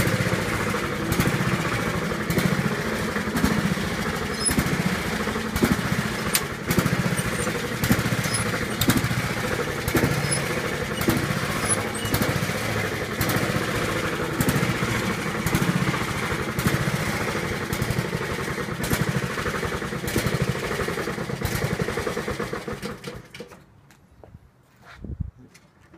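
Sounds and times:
lawn mower engine running: 0.0 - 23.6.

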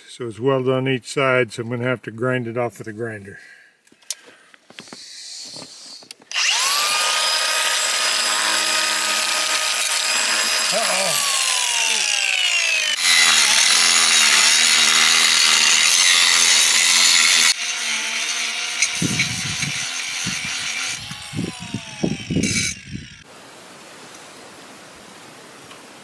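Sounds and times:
angle grinder grinding steel: 6.3 - 23.3.

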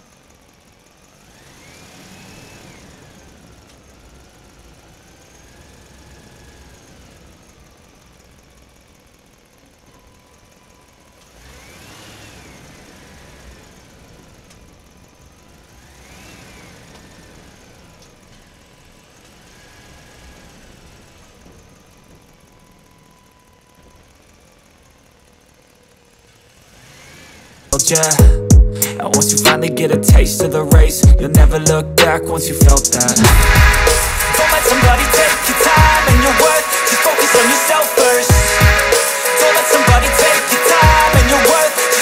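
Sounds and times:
engine revving: 1.0 - 7.6, 11.3 - 14.7, 15.4 - 18.2, 26.2 - 28.2, 30.5 - 42.0.

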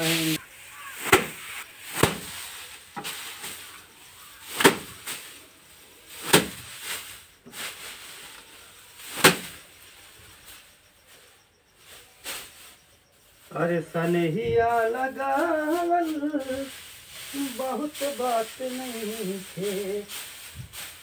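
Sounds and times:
rice stalks whacking wooden bench: 0.0 - 5.5, 6.1 - 10.7, 12.0 - 12.8, 15.2 - 21.0.

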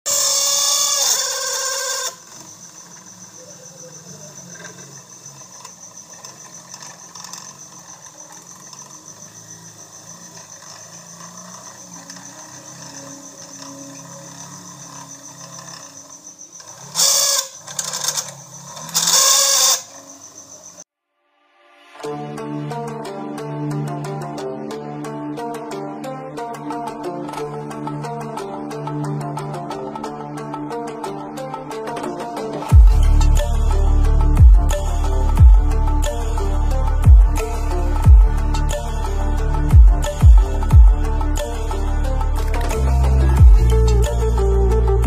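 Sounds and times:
small drill whirring: 0.1 - 20.9.

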